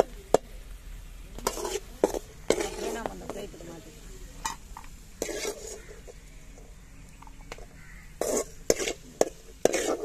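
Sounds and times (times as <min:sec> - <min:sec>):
ghee sizzling: 0:00.0 - 0:10.0
skimmer scraping metal pan: 0:01.4 - 0:03.5, 0:05.2 - 0:06.2, 0:08.0 - 0:10.0.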